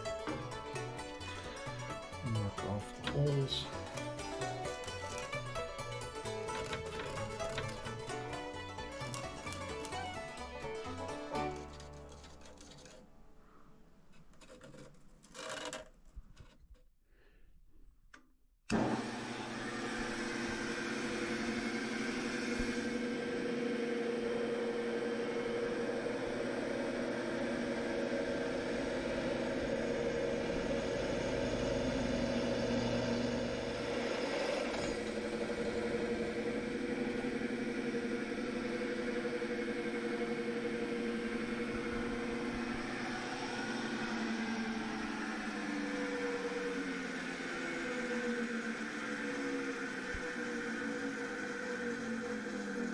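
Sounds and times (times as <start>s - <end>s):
drill press boring steel: 25.2s - 52.9s.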